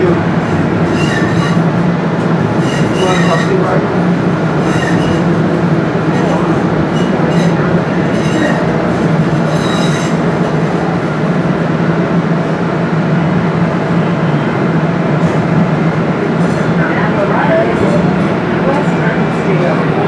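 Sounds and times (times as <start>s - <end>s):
train rumble: 0.0s - 20.0s
high wheel squeal: 0.5s - 1.8s, 2.6s - 3.8s, 4.6s - 5.4s, 6.1s - 10.4s.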